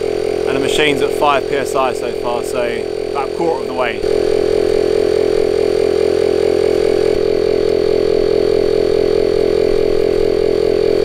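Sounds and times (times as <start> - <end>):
electric pump droning: 0.0 - 11.0.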